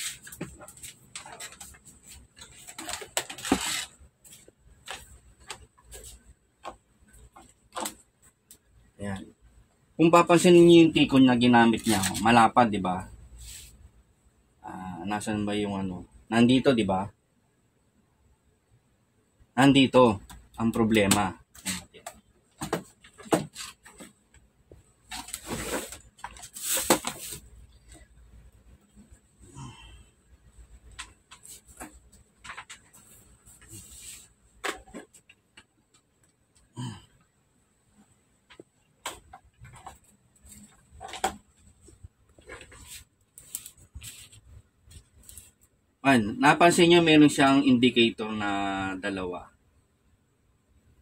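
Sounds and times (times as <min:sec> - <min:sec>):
tape roll scraping: 0:00.0 - 0:04.0, 0:11.7 - 0:12.3, 0:25.0 - 0:27.5, 0:42.4 - 0:45.6
rustling: 0:24.8 - 0:28.2, 0:38.5 - 0:45.8.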